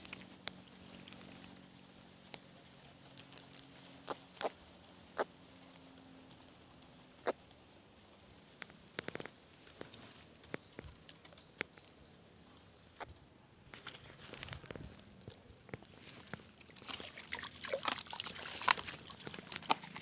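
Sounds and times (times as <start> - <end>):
hands handling fish and line: 0.0 - 2.1, 8.6 - 10.6.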